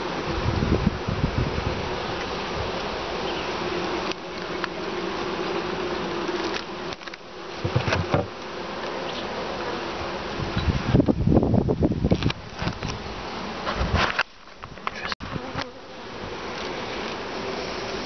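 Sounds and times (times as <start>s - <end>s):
honeybees buzzing: 0.0s - 18.0s
hive frames clicking and knocking: 3.9s - 9.1s.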